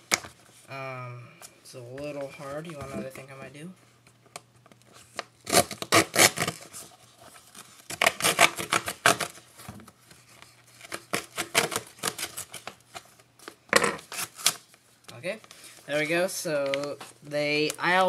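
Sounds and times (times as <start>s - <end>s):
blade cutting packaging: 5.4s - 6.7s, 7.9s - 9.4s, 10.8s - 12.7s.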